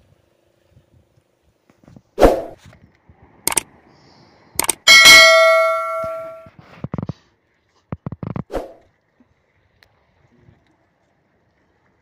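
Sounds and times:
sharp clicks: 3.5s - 3.7s, 4.6s - 4.8s
loud bell ding: 4.8s - 6.5s.

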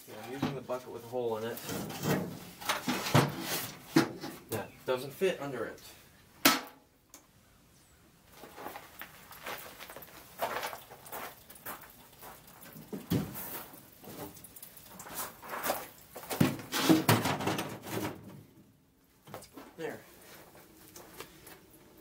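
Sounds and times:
plastic container knocks and scrapes: 1.6s - 4.5s, 16.2s - 18.3s.

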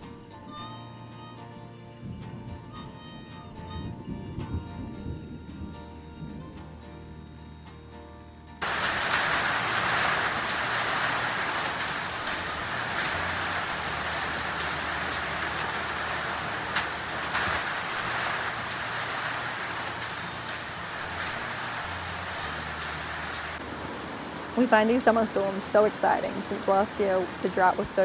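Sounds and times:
raindrops ticking: 0.0s - 7.8s, 8.5s - 28.0s
rain pouring on trees: 8.6s - 28.0s.

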